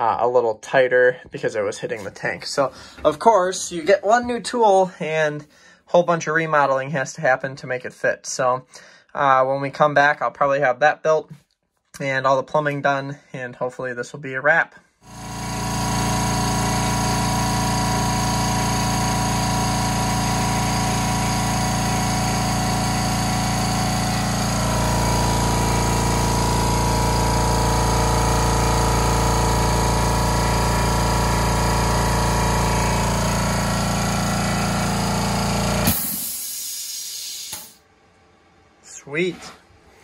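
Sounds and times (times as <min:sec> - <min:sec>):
air compressor running: 0:15.0 - 0:37.8
compressor shutoff click: 0:15.1 - 0:37.8
hiss of air: 0:35.8 - 0:37.8.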